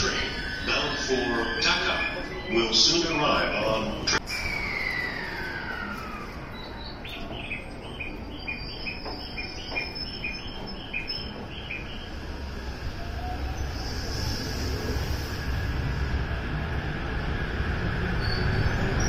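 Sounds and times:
train rolling rumble: 0:00.0 - 0:19.0.

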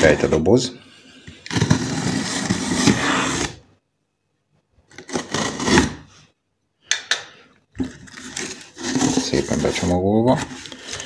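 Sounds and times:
packing tape ripping: 0:04.9 - 0:06.0.

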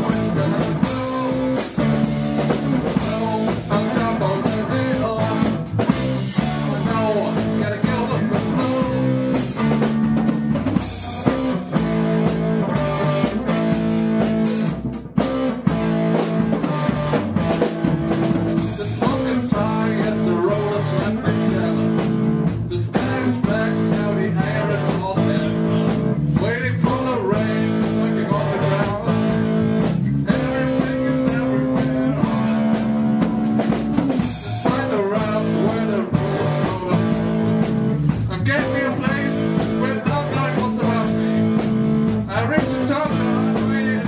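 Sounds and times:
live band with guitars and drums: 0:00.0 - 0:44.0.

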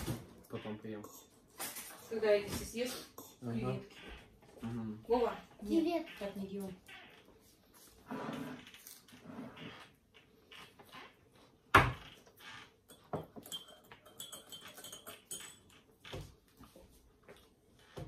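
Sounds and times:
cutlery clicking on plates: 0:12.9 - 0:15.9.

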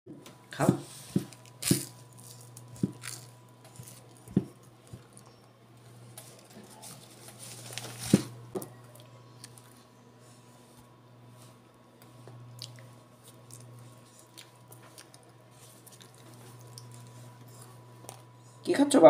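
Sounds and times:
steady low hum: 0:00.1 - 0:19.0
child chewing toast: 0:01.4 - 0:05.5, 0:12.1 - 0:18.4.

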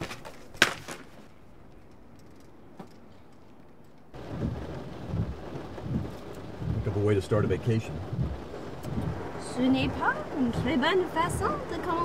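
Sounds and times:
rainstorm heard from inside car: 0:04.1 - 0:12.0
thunder: 0:04.2 - 0:11.4.

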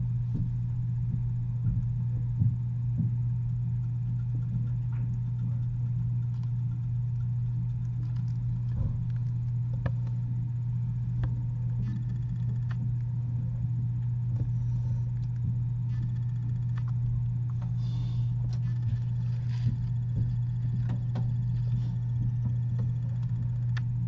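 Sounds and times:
steady low hum: 0:00.0 - 0:24.0
faint clicks and taps: 0:04.0 - 0:10.2, 0:18.4 - 0:24.0.

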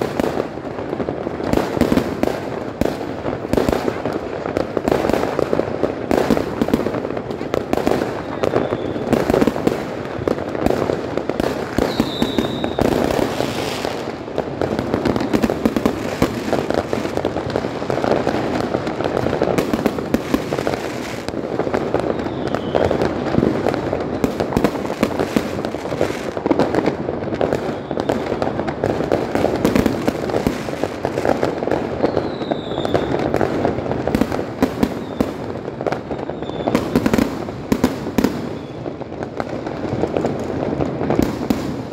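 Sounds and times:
fireworks bangs and crackles: 0:00.0 - 0:41.9
firework whistles: 0:06.1 - 0:17.4, 0:19.3 - 0:26.6, 0:27.3 - 0:30.8, 0:31.8 - 0:39.1.

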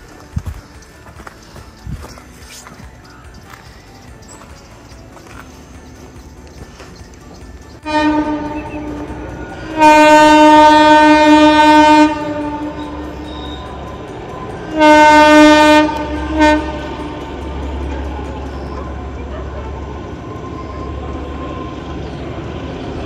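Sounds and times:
horn blasts: 0:07.8 - 0:22.0.

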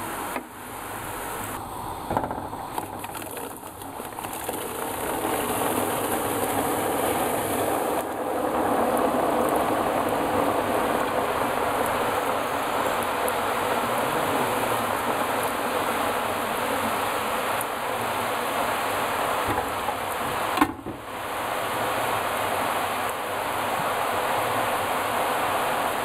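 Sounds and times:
hot oil sizzling: 0:00.0 - 0:26.0.

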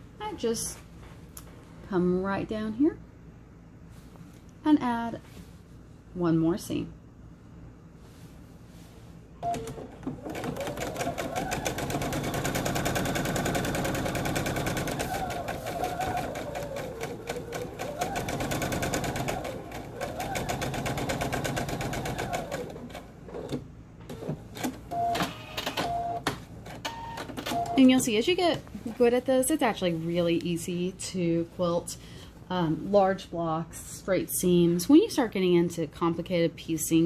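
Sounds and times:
sewing machine stitching: 0:09.4 - 0:24.3.

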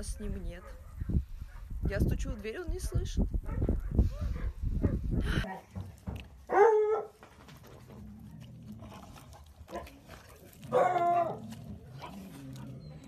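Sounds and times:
dog barking: 0:00.6 - 0:01.7, 0:02.8 - 0:05.0, 0:06.5 - 0:07.2, 0:10.7 - 0:11.4.

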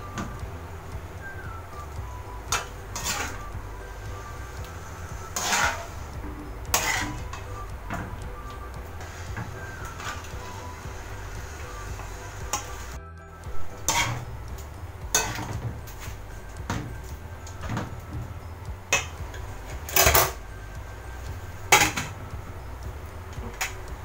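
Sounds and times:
soft background music: 0:00.0 - 0:24.0
utensils scraping a metal wok: 0:02.6 - 0:03.5, 0:04.8 - 0:06.1, 0:06.7 - 0:07.5, 0:13.8 - 0:14.3.

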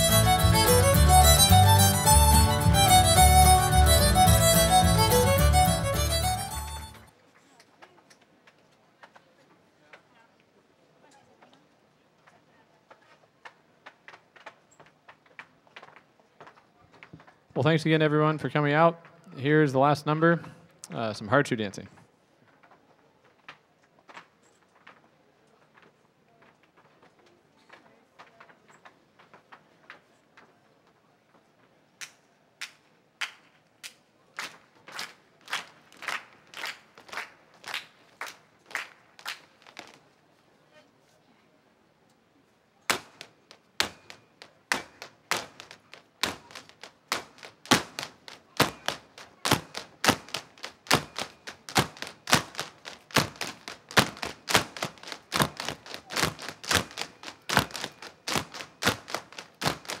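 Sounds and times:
hard shoes striking stage: 0:00.0 - 0:07.0, 0:42.9 - 1:00.0.

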